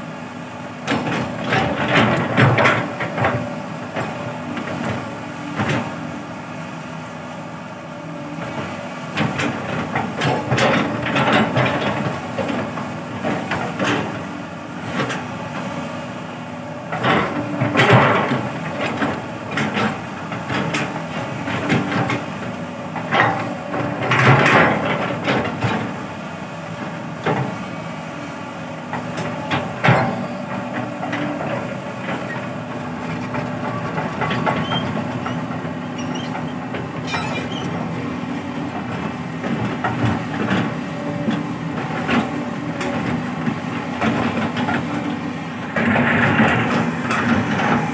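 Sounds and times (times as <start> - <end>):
excavator diesel engine running: 0.0 - 47.9
metallic clanks: 37.0 - 37.8.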